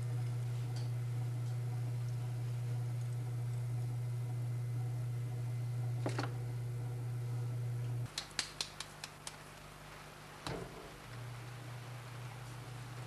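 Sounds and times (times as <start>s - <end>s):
steady low hum: 0.0s - 8.1s.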